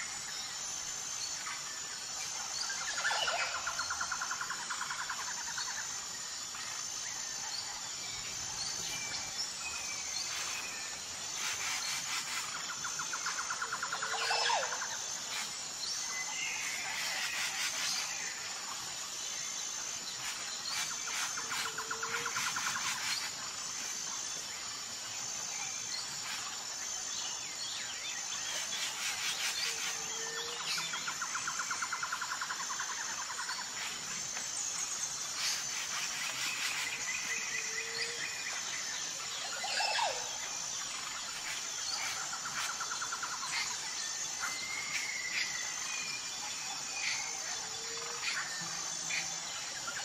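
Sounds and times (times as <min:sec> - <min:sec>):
insect chirping: 0:00.0 - 0:50.0
birds calling and trilling: 0:00.8 - 0:19.0.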